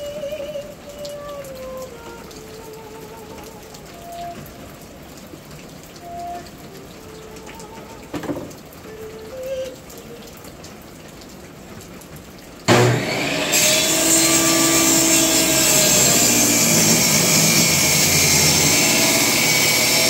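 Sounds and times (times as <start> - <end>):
rain falling: 0.0 - 20.0
knock: 8.1 - 8.5.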